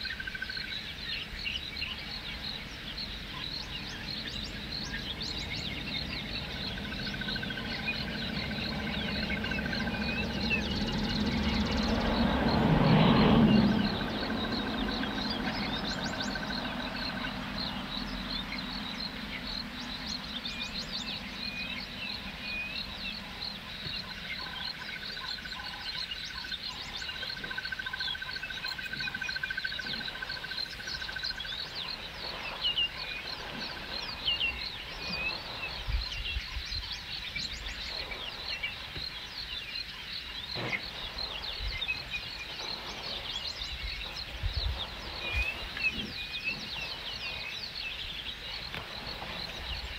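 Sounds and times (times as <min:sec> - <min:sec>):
birds chirping: 0:00.0 - 0:49.9
pulsing chorus of calling animals: 0:03.3 - 0:35.9
low vehicle engine hum: 0:03.8 - 0:23.9.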